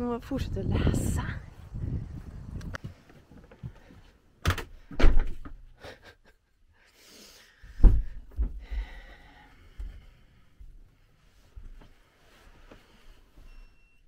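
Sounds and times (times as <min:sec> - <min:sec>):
thumps and knocks: 0:07.7 - 0:08.6.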